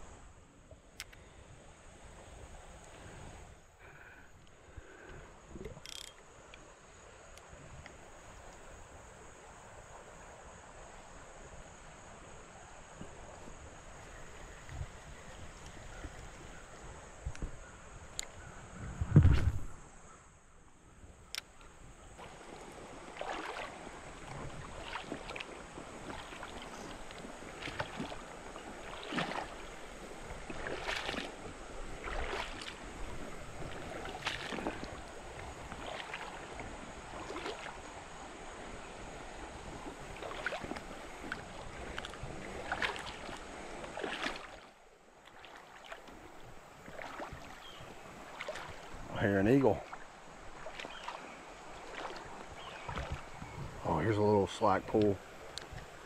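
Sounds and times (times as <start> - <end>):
legs splashing through water: 22.2 - 56.0.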